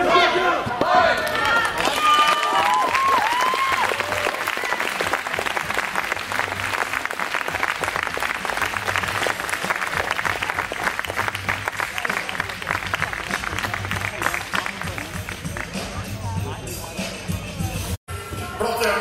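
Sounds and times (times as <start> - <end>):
audience applauding: 1.2 - 16.0.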